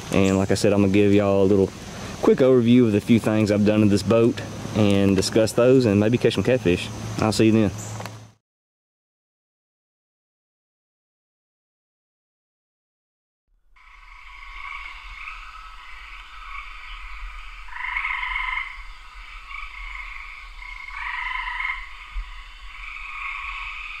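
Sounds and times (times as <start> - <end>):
frogs calling: 13.8 - 24.0.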